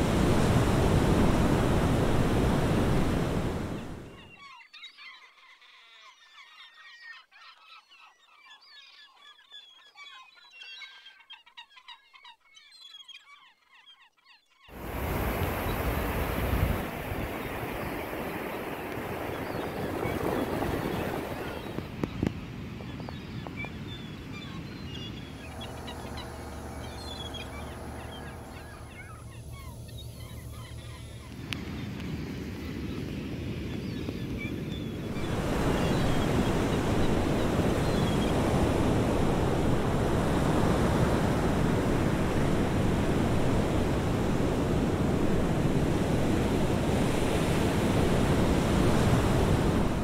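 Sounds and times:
ocean surf breaking: 0.0s - 4.3s, 14.7s - 50.0s
low steady hum: 25.2s - 31.7s.

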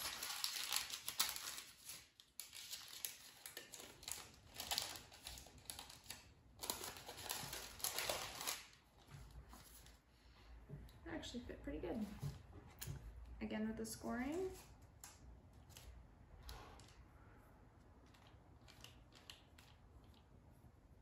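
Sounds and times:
parchment paper crinkling: 0.0s - 10.0s, 14.5s - 17.0s, 17.8s - 20.7s.

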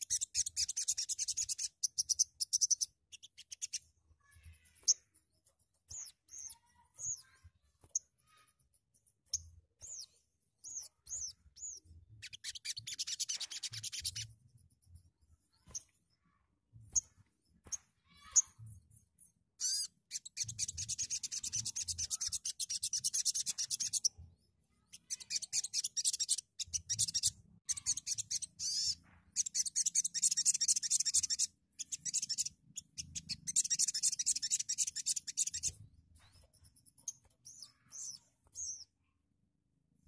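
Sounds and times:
soft bird chirps: 0.0s - 39.3s
bird chattering trills: 25.0s - 35.7s.

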